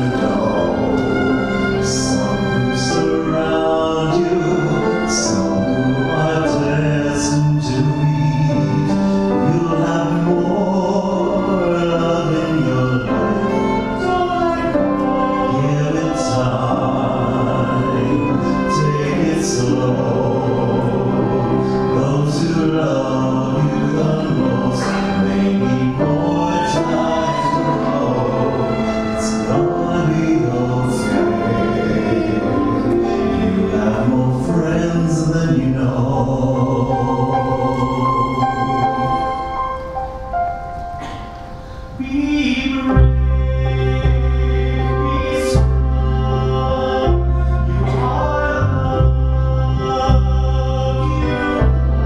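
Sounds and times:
vocal group singing in harmony: 0.0s - 40.1s, 41.0s - 52.0s
grand piano: 0.0s - 52.0s
violin: 0.0s - 52.0s
upright bass: 42.9s - 52.0s.

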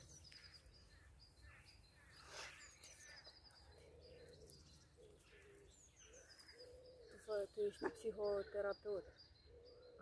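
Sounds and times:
small birds chirping: 0.0s - 10.0s
dove cooing: 3.7s - 8.6s.

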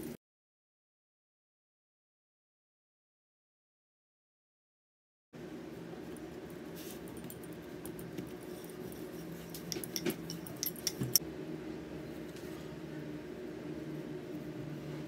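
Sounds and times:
steady low hum: 5.4s - 15.0s.

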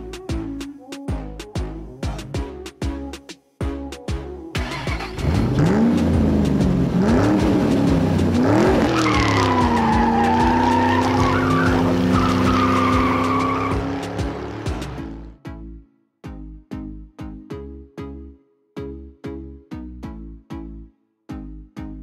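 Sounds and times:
music with a beat: 0.0s - 4.6s, 5.2s - 18.2s
race car engine revving: 4.6s - 15.2s
tyre squeal: 8.8s - 14.0s.

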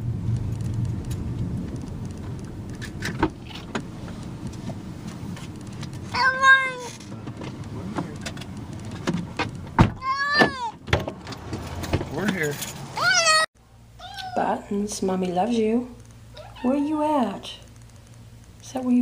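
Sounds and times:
low steady rumble: 0.0s - 19.0s
cat meowing: 6.1s - 6.9s, 10.0s - 10.8s, 13.0s - 14.5s, 16.3s - 16.8s.

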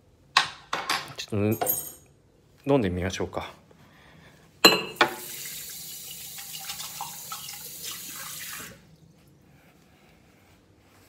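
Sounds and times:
tap running into washbasin: 4.9s - 8.8s.

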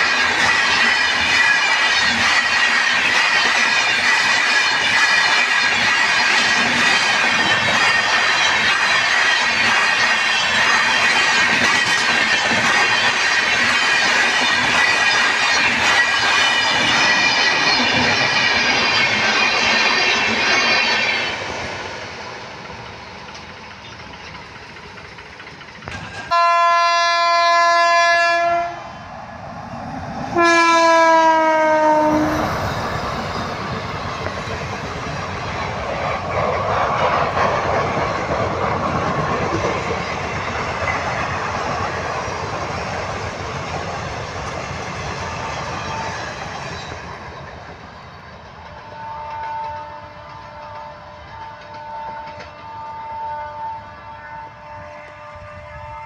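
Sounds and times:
passing train high whine: 0.0s - 56.0s
train coaches clickety-clack: 0.0s - 56.0s
locomotive horn: 26.3s - 28.9s, 30.4s - 32.5s, 48.8s - 56.0s.

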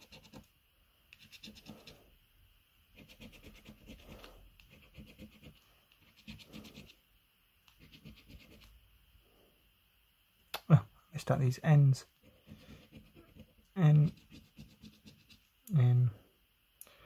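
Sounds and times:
coin scratching a scratchcard: 0.0s - 0.5s, 1.2s - 2.0s, 2.9s - 7.0s, 7.8s - 8.7s, 12.4s - 15.4s.

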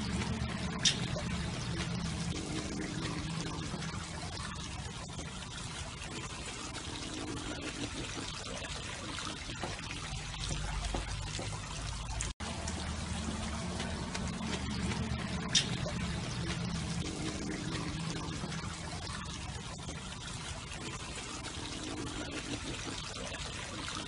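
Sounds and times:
low hum: 0.0s - 6.3s, 10.1s - 20.1s
water trickling: 0.0s - 24.0s.

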